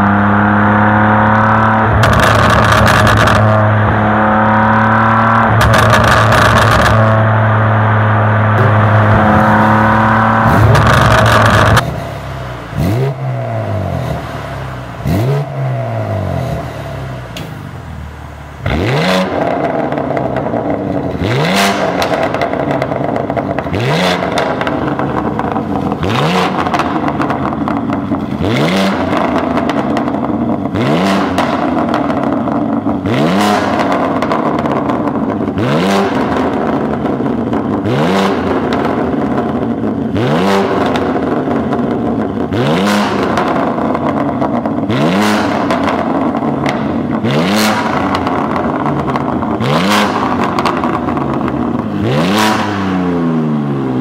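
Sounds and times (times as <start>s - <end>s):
car engine revving: 0.0s - 54.0s
exhaust pops and crackles: 1.9s - 3.6s, 5.4s - 7.1s, 10.4s - 12.0s, 21.8s - 37.9s, 38.5s - 52.6s.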